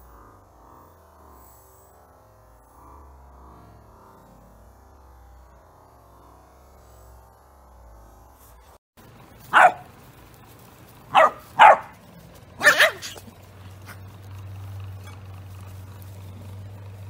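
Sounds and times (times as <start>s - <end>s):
small dog barking: 9.4s - 9.9s, 11.1s - 14.1s, 14.8s - 16.7s.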